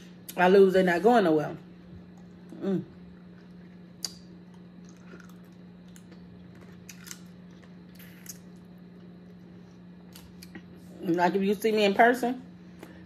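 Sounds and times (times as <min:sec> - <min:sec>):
steady low hum: 0:00.0 - 0:13.0
shells cracking while eating: 0:03.9 - 0:09.2.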